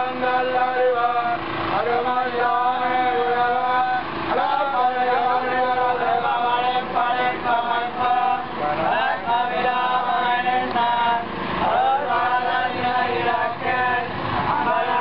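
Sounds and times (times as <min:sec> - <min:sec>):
men chanting hymns in unison: 0:00.0 - 0:15.0.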